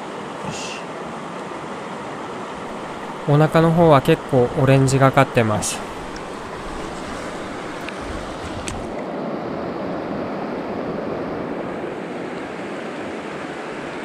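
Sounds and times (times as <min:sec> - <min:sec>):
river current rushing: 0:00.0 - 0:09.3.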